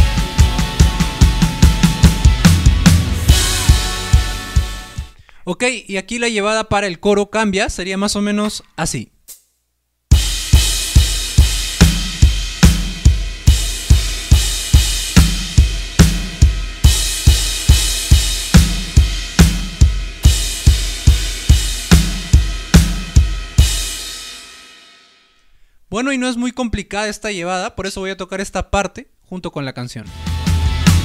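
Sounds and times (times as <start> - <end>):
electronic drum kit groove: 0.0 - 5.2, 10.1 - 24.7, 30.1 - 31.0.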